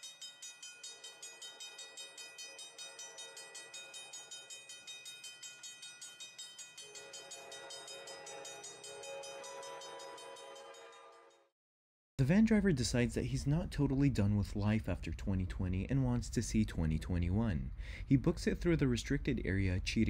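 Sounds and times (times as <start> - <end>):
railroad crossing bell ringing: 0.0 - 11.5
train horn: 6.8 - 11.5.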